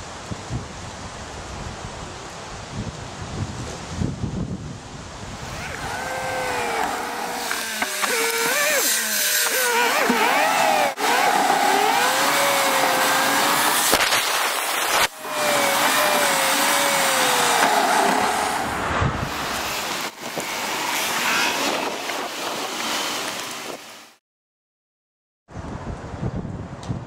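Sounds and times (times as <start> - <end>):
road and wind noise: 0.0 - 24.2, 25.5 - 27.0
car engine: 5.4 - 23.8.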